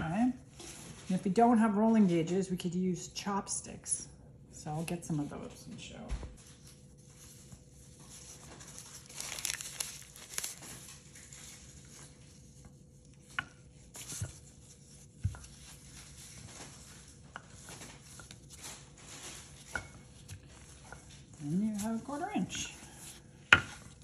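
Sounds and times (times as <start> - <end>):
paper wrapper crinkling and tearing: 7.3 - 12.2.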